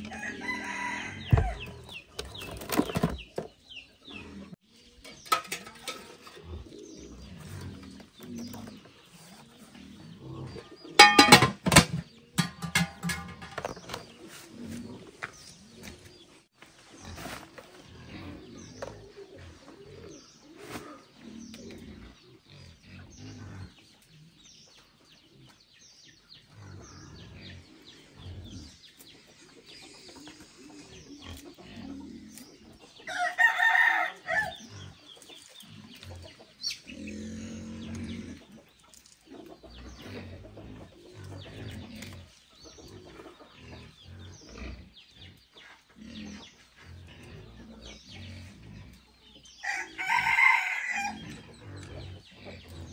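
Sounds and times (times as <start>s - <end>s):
rooster crowing: 0.0s - 1.6s, 33.1s - 34.6s, 49.6s - 51.2s
chickens clucking: 0.0s - 52.9s.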